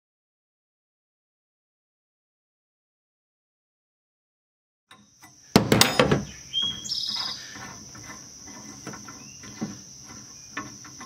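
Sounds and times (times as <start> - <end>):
bird chirping: 4.9 - 11.0
insect drone: 4.9 - 11.0
wrench clanking on metal: 5.6 - 11.0.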